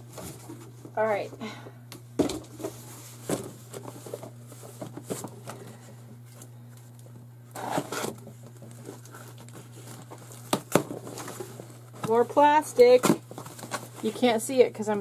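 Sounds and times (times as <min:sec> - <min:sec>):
plastic packaging crinkling: 0:06.3 - 0:14.6.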